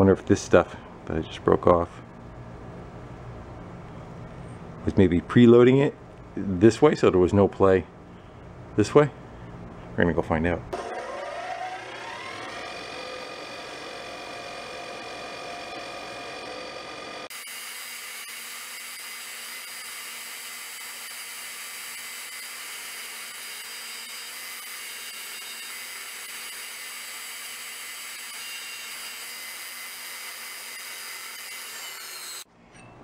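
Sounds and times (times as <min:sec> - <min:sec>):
bench grinder running: 0:10.8 - 0:32.5.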